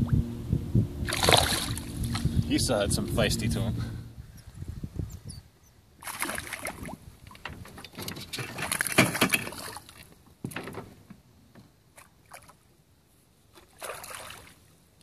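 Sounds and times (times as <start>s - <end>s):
net splashing into water: 1.0s - 2.2s, 6.0s - 7.0s, 8.4s - 10.1s, 13.5s - 14.6s
fish thrashing in water: 1.0s - 2.4s, 6.0s - 10.1s
water sloshing: 1.0s - 2.5s, 6.0s - 11.1s, 13.5s - 14.6s
knocks and clatter on boat: 6.2s - 11.8s.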